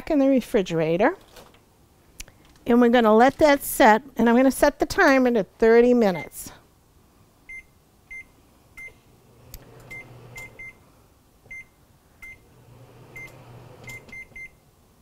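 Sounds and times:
microwave keypad beeps: 0:09.9 - 0:10.8, 0:13.2 - 0:14.6.

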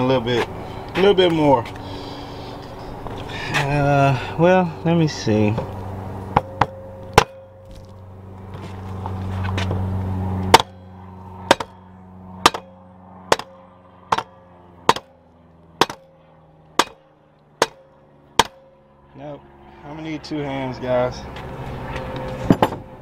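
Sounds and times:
low hum: 0:00.0 - 0:23.0
rubber hammer blows on metal: 0:17.6 - 0:18.7.

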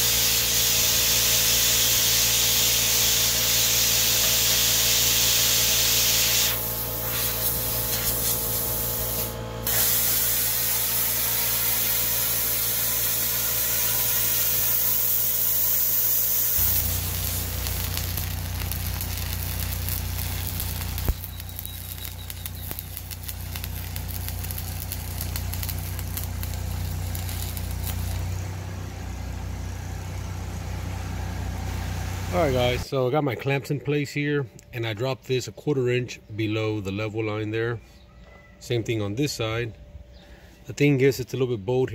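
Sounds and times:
welding arc hissing crackle: 0:00.0 - 0:28.6
low hum: 0:16.5 - 0:32.8.

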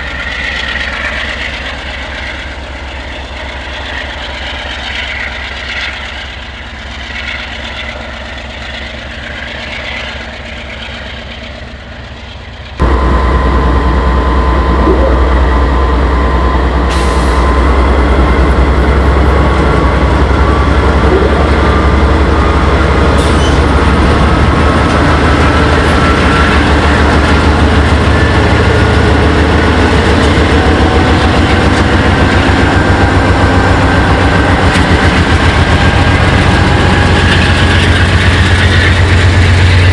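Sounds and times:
diesel locomotive engines: 0:00.0 - 0:39.9
whine rising in pitch: 0:12.8 - 0:22.9.

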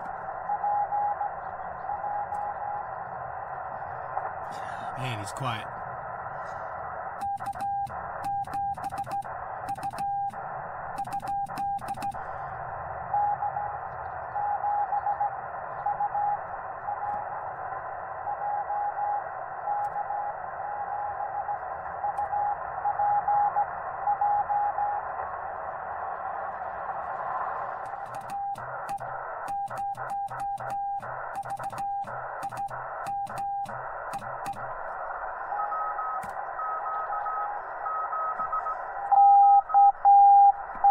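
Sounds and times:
faint morse tones: 0:00.0 - 0:05.8, 0:06.9 - 0:40.9
radio band hiss: 0:02.8 - 0:07.2, 0:25.0 - 0:39.1
morse code sidetone: 0:07.2 - 0:10.4, 0:11.0 - 0:12.2, 0:28.2 - 0:34.6, 0:35.5 - 0:40.9.

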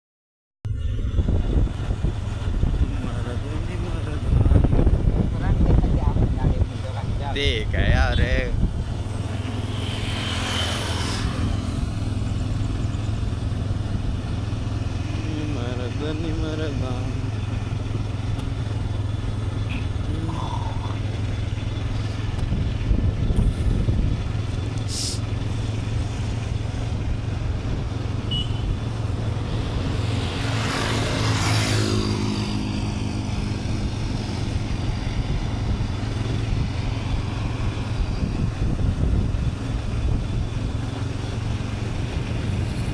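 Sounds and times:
wind and road rumble: 0:00.6 - 0:42.9
loud rushing sound: 0:00.7 - 0:15.6
motorcycle engine cruising: 0:00.7 - 0:42.9.

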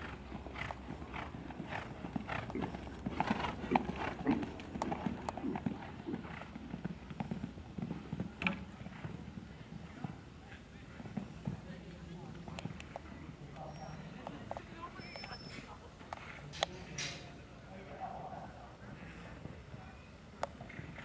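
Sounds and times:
horse hoofbeats on sand: 0:00.0 - 0:10.2.

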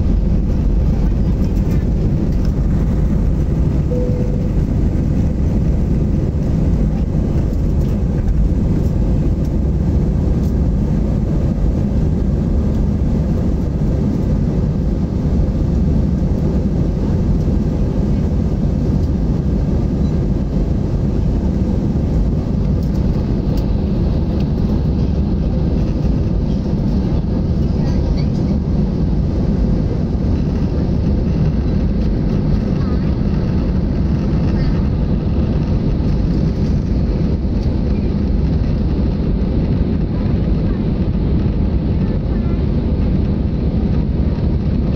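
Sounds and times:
rushing air: 0:00.0 - 0:17.0
jet engines rumbling: 0:00.0 - 0:44.9.

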